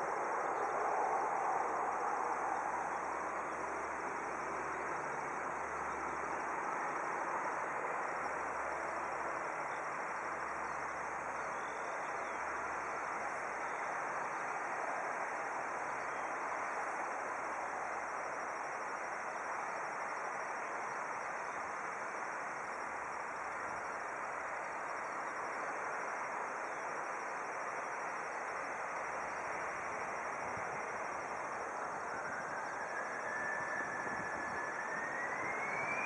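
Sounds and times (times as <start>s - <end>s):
distant jet engines roaring: 0.1s - 9.4s, 29.4s - 36.0s.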